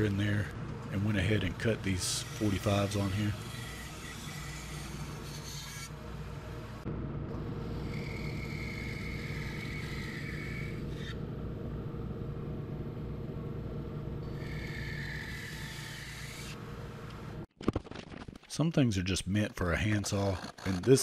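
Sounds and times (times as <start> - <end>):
saw blade cutting wood: 1.3 - 6.0, 7.6 - 11.2, 14.2 - 16.6, 19.8 - 21.0.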